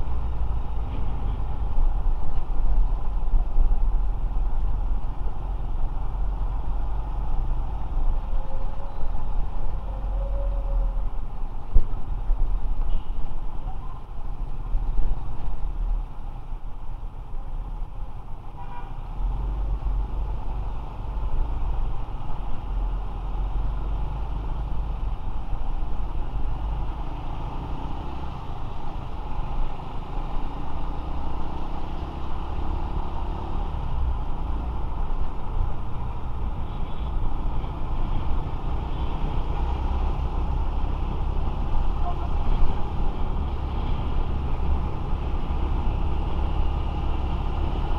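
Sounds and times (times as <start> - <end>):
road traffic: 0.0 - 47.9.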